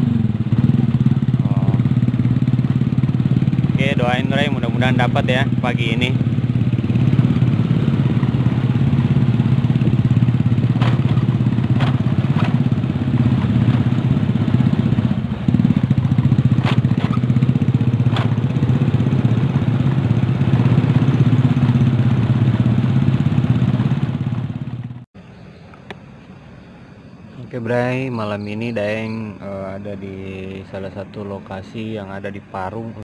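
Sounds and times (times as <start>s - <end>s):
small motorcycle engine running: 0.0s - 25.0s
road and wind noise: 0.0s - 33.0s.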